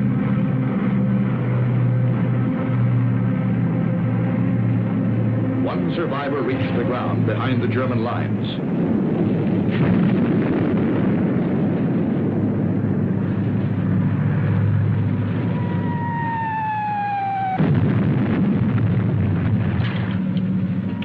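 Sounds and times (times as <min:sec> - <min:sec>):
explosion blast: 0:08.8 - 0:12.8, 0:15.2 - 0:20.3
artillery rumble: 0:08.8 - 0:21.0.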